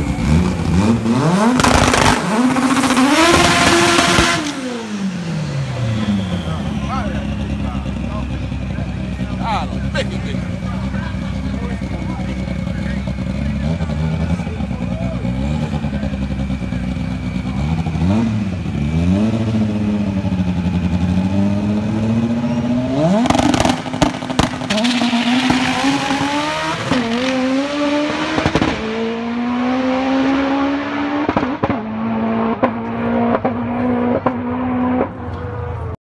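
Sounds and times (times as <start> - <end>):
drag racing car engine: 0.0 - 36.0
sharp cracks: 1.6 - 2.3.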